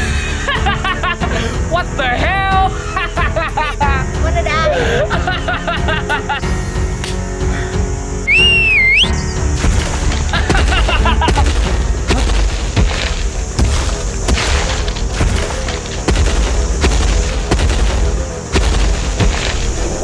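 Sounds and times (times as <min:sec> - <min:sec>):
background music: 0:00.0 - 0:20.0
heavy booming footstep thuds: 0:09.4 - 0:20.0.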